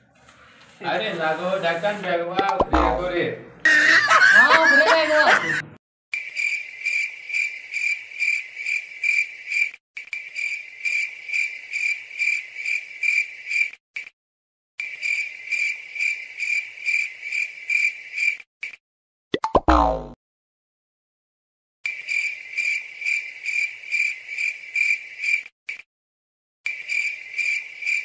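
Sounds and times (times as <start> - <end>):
cricket chirping: 6.2 - 13.7, 14.8 - 18.4, 21.9 - 25.5, 26.7 - 28.0.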